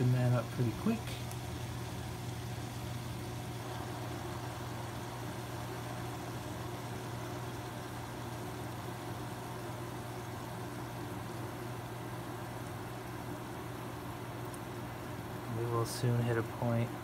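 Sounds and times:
submersible pump humming: 0:00.0 - 0:17.0.

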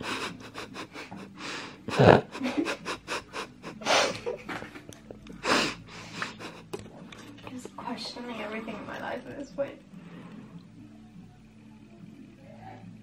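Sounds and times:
woman panting: 0:00.0 - 0:04.2, 0:05.4 - 0:06.8.

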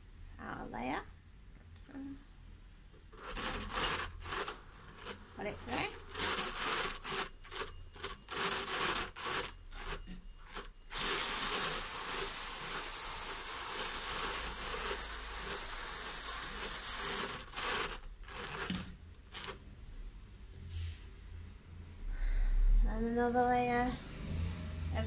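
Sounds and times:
drum carder brushing wool: 0:03.1 - 0:19.6.

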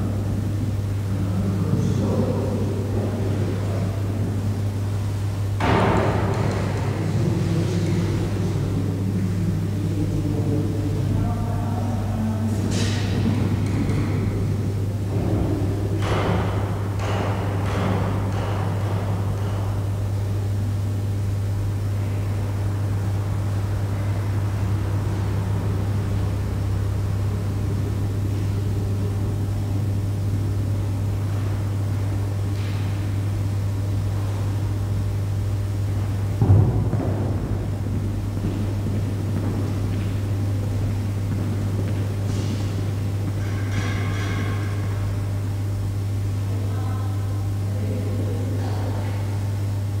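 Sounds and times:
low hum: 0:19.9 - 0:48.8.

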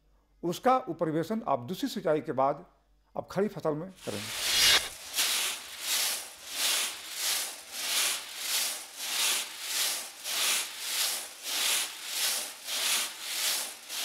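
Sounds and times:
seed tumbling in metal drum: 0:04.0 - 0:14.0.

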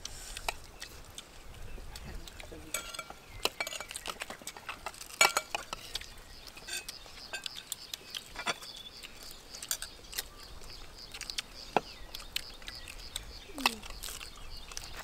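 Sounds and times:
spoons clinking on plates: 0:02.7 - 0:04.0, 0:04.6 - 0:05.9, 0:06.6 - 0:07.6, 0:08.3 - 0:08.7.

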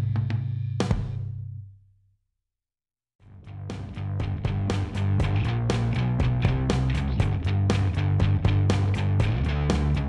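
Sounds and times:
guitar music with steady beat: 0:03.4 - 0:10.0.

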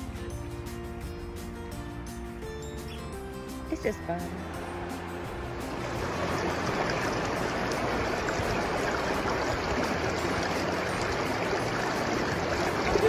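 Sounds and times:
river water rushing over rocks: 0:04.8 - 0:13.0.

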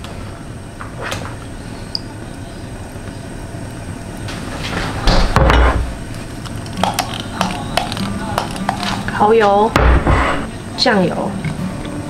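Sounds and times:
kitchen cupboard opening and shutting: 0:04.7 - 0:05.9, 0:09.7 - 0:10.5.

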